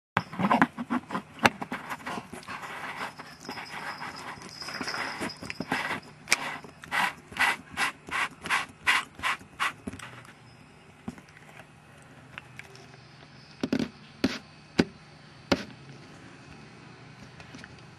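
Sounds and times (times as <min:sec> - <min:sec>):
rasping strokes: 0:00.2 - 0:10.2
hand rubbing on camera lens: 0:00.8 - 0:09.8.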